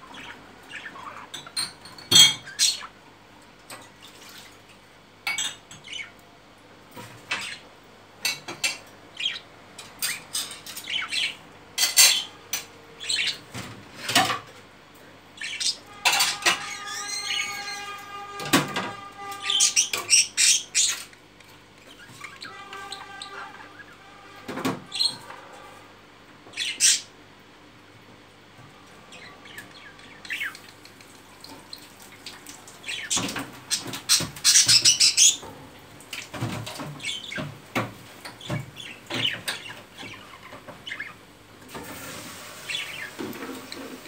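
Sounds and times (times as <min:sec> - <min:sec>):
budgerigars chirping: 0:00.0 - 0:01.4, 0:05.4 - 0:06.1, 0:07.3 - 0:07.7, 0:09.1 - 0:09.4, 0:10.0 - 0:12.4, 0:13.0 - 0:13.4, 0:15.4 - 0:18.0, 0:19.3 - 0:21.1, 0:26.5 - 0:27.1, 0:29.1 - 0:30.7, 0:32.8 - 0:35.4, 0:37.0 - 0:37.5, 0:38.4 - 0:41.2.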